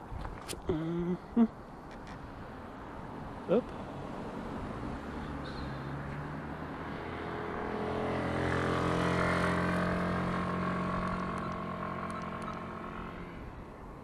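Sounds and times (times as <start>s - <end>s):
vehicle driving past: 3.3s - 13.7s.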